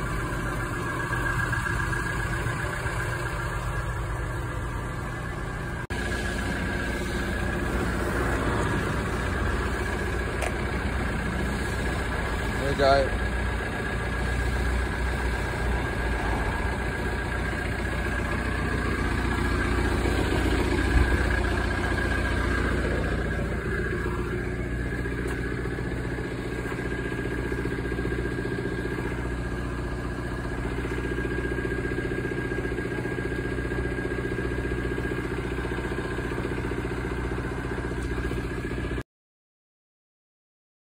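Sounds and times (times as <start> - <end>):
van engine idling: 0.0 - 39.0.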